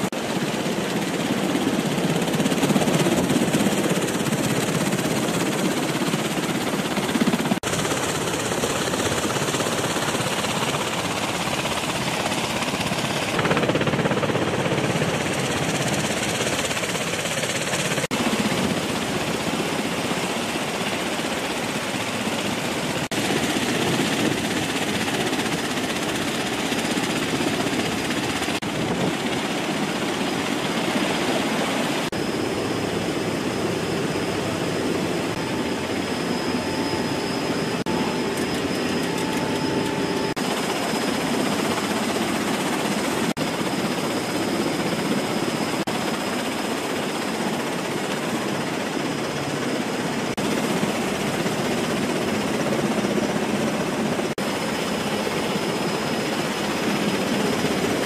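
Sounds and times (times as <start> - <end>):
aircraft engines and rotors running: 0.0 - 58.0
thin high whine: 32.1 - 41.2.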